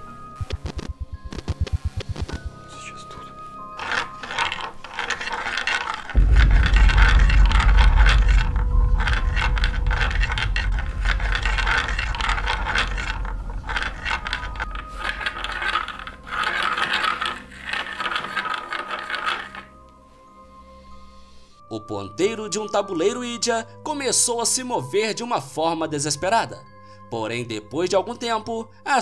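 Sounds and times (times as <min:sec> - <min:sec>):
loud crackling scraping noise: 0:03.8 - 0:19.8
deep rumble: 0:06.1 - 0:16.4.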